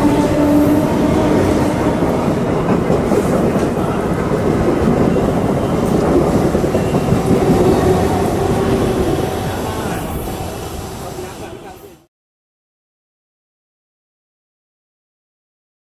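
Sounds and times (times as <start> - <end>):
train wheels rushing on rails: 0.0 - 12.1.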